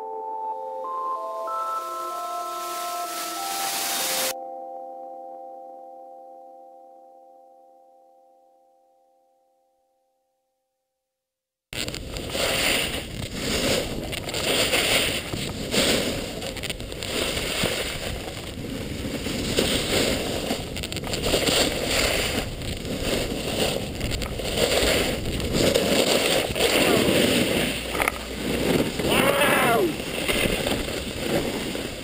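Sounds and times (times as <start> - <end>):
snowboard scraping packed snow: 11.8 - 32.0
wind rushing over microphone: 11.8 - 32.0.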